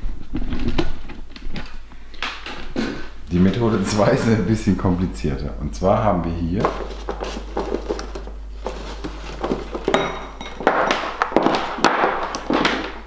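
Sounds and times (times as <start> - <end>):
cables rustling and dragging: 6.6 - 10.0.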